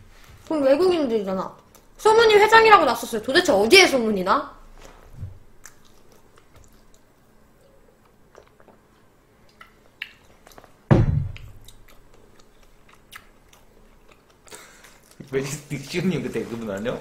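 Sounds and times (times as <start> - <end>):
mouth clicks and gulps drinking: 8.0 - 10.7.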